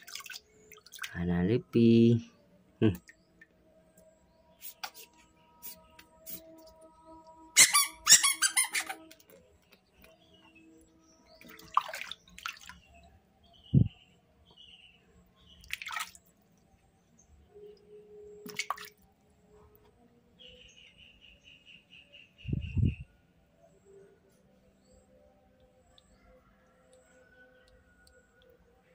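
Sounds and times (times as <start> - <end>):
water splashing in plastic basin: 0.0 - 1.2, 11.4 - 12.9, 15.6 - 16.3, 18.4 - 19.0
baby monkey chirping: 7.6 - 9.1
squeaky rubber duck toy: 7.6 - 9.2.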